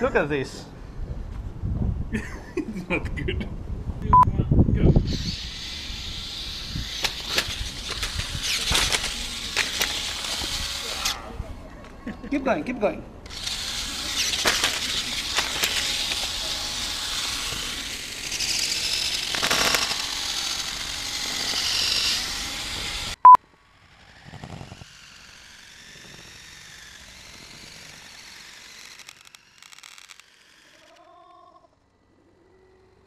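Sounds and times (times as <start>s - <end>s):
toy truck motors whirring: 4.8s - 12.0s, 13.2s - 31.1s.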